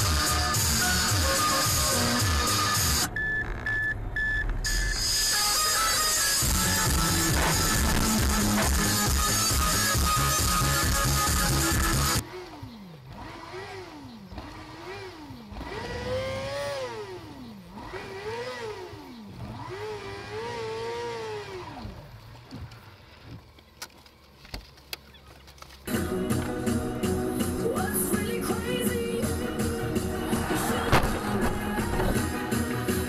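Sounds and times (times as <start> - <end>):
car engine revving: 5.2 - 22.2, 26.0 - 33.0.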